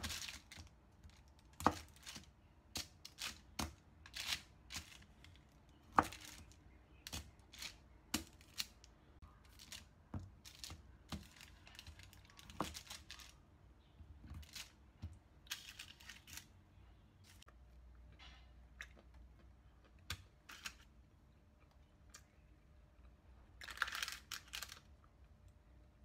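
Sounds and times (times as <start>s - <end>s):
paper crinkling: 0.0s - 2.3s, 9.5s - 13.4s, 23.6s - 24.8s.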